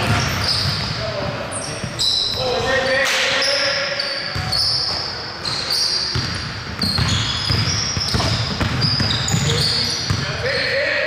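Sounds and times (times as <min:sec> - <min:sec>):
sneakers squeaking: 0:00.0 - 0:11.0
basketball bouncing on hardwood: 0:06.1 - 0:10.2.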